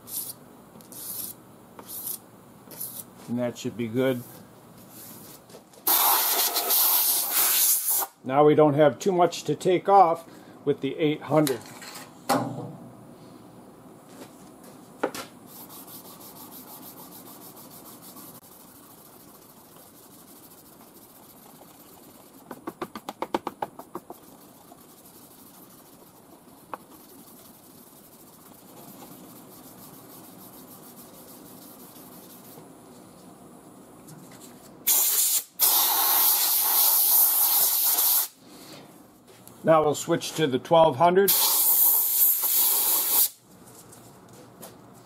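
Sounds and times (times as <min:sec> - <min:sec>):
air blow gun hissing: 0:05.9 - 0:08.2, 0:34.9 - 0:38.4, 0:41.3 - 0:43.4
hand sanding scrubbing: 0:15.5 - 0:32.6.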